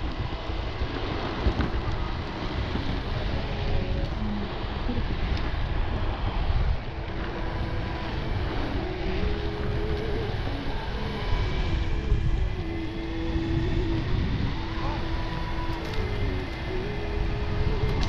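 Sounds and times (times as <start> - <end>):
electric skateboard rumbling: 0.0 - 18.0
faint music: 0.0 - 18.0
wind noise on microphone: 0.0 - 18.0.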